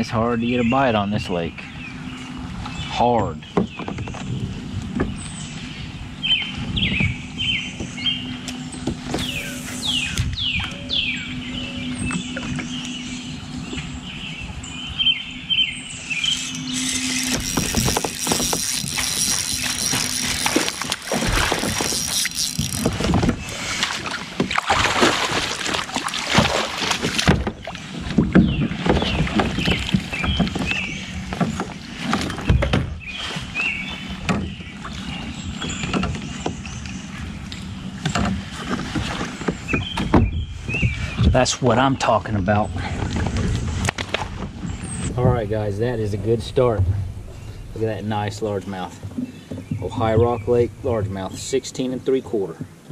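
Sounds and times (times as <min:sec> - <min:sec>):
sharp knocks and clicks: 0:16.5 - 0:23.4
fish thrashing in water: 0:16.6 - 0:36.4.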